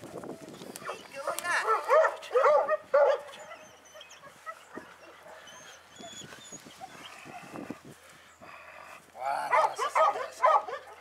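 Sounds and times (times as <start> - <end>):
puppy yapping: 9.5 - 11.0.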